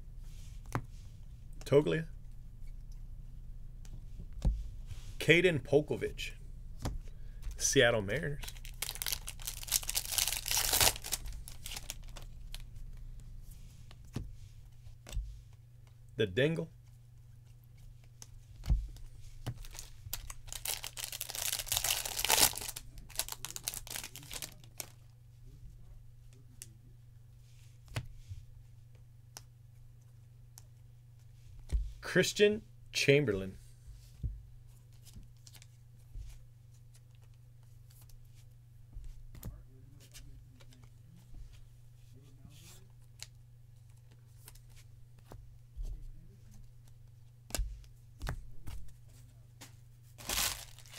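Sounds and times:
steady low hum: 0.0 - 50.9
cards rustling: 6.9 - 12.7, 18.9 - 25.0, 50.2 - 50.9
foil wrapper tearing and crinkling: 8.4 - 12.6, 19.6 - 25.0, 50.2 - 50.9.

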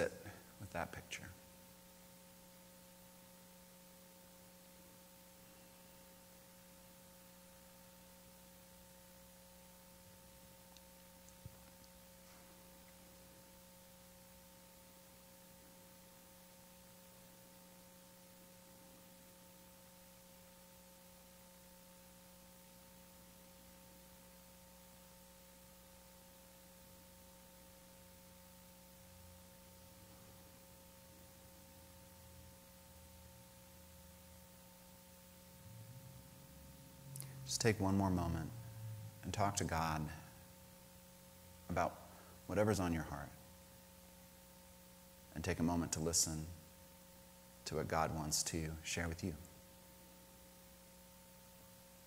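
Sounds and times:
faint electrical hum and hiss: 0.0 - 52.0.

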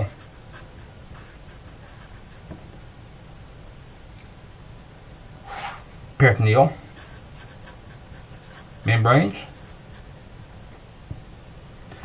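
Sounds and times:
low room hum: 0.0 - 12.0
short hiss: 5.4 - 5.9
marker writing on paper: 6.9 - 10.1.

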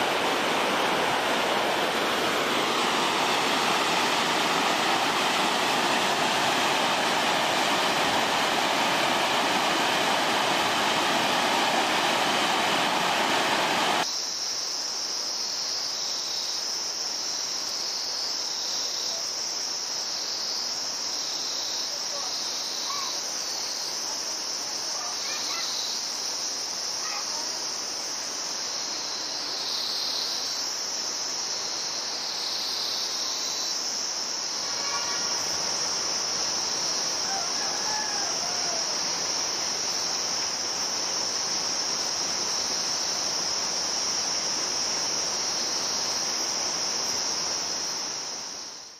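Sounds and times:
rushing river whitewater: 0.0 - 14.1, 33.6 - 48.8
high-pitched insect chorus: 0.0 - 48.9.

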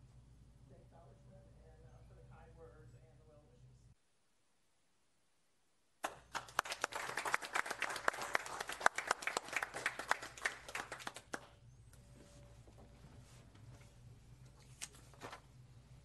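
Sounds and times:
people applauding: 6.0 - 11.6.

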